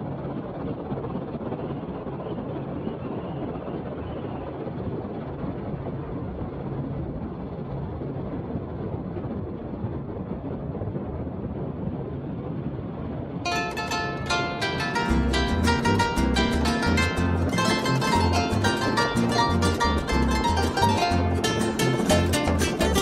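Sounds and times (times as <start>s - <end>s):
helicopter rotor and engine: 0.0s - 5.2s.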